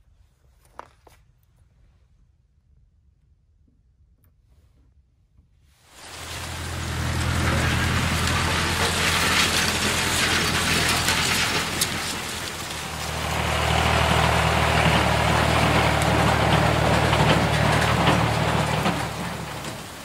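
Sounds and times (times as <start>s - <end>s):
heavy machinery engine droning: 6.0s - 20.0s.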